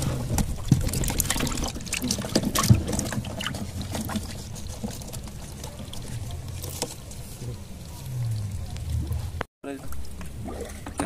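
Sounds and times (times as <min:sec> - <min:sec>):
knocks and clatter on boat: 0:00.0 - 0:06.0
steady low rumble: 0:06.0 - 0:10.4.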